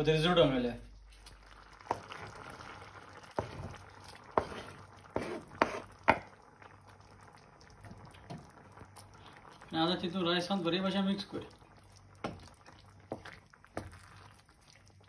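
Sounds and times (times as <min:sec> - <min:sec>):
soft bubbling simmer: 0:00.0 - 0:15.0
food knocking and plopping into pan: 0:01.8 - 0:02.4, 0:03.2 - 0:04.5, 0:05.2 - 0:06.4, 0:07.8 - 0:08.7, 0:12.2 - 0:14.1.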